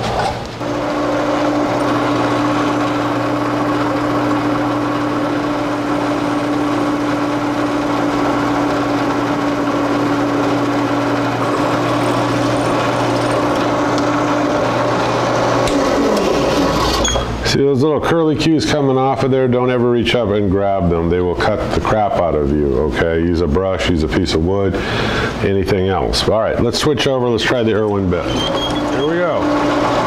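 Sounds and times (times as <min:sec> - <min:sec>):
drill press cutting steel: 0:00.0 - 0:17.4, 0:28.2 - 0:30.0.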